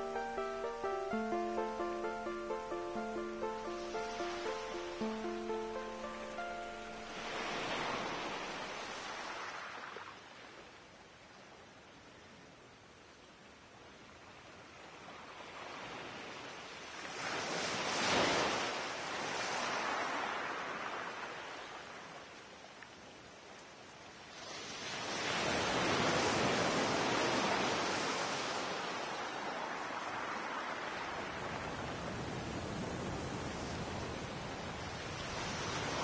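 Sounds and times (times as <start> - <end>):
sea waves breaking on beach: 2.7 - 10.7, 15.3 - 22.0, 24.3 - 36.0.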